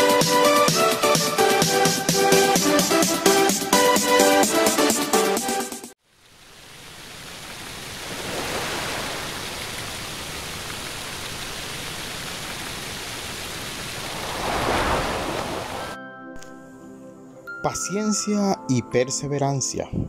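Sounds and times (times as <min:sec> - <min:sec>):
steady rushing noise: 0:13.7 - 0:16.0.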